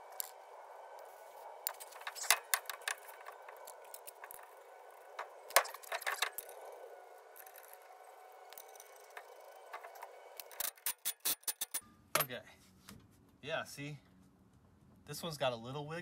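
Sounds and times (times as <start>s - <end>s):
wheel bearing clicks and knocks: 1.7s - 6.7s, 7.4s - 12.3s.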